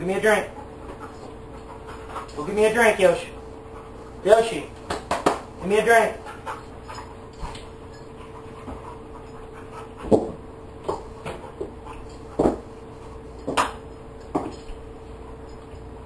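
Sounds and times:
dog panting: 0:00.0 - 0:04.8, 0:05.4 - 0:14.0.

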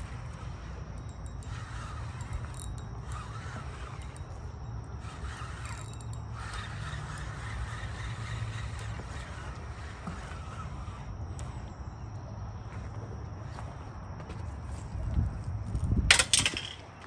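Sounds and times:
fishing reel cranked ticking: 0:00.0 - 0:11.6
low wind rumble: 0:00.0 - 0:17.0.

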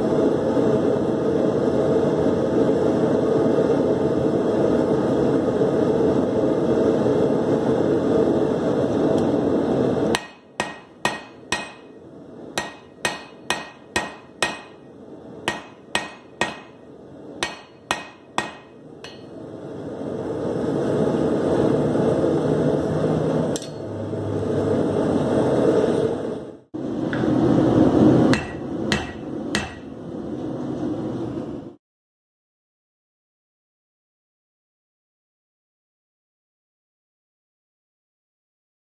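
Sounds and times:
steady hum: 0:00.0 - 0:31.8
hammer striking metal on anvil: 0:10.1 - 0:12.0, 0:12.6 - 0:19.4, 0:23.5 - 0:23.9, 0:28.3 - 0:29.9.

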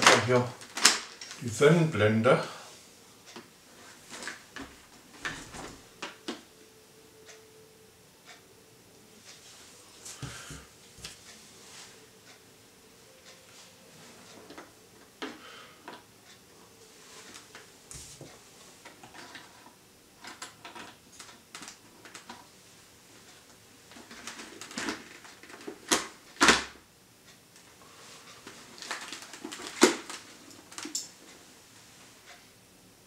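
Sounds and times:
plastic clicks and knocks on helmet: 0:00.0 - 0:01.4, 0:23.9 - 0:26.8, 0:28.4 - 0:31.1.

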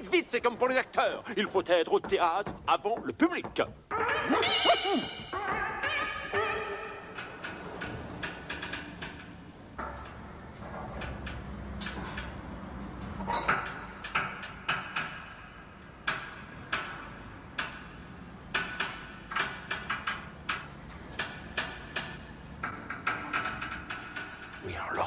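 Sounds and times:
metallic clanks and knocks: 0:07.0 - 0:24.6.

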